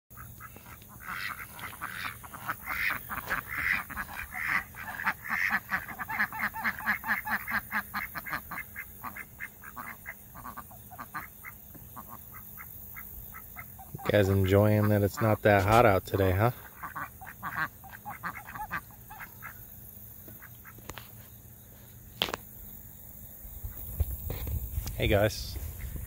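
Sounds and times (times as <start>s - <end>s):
ducks quacking: 0.1s - 21.0s.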